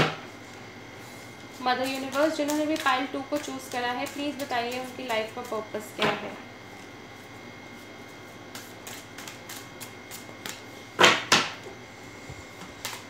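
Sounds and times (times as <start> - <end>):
cards slapping: 1.9 - 4.5, 12.8 - 13.0.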